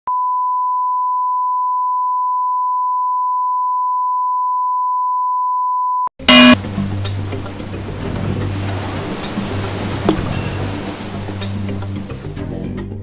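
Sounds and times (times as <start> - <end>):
sine test tone: 0.1 - 6.6.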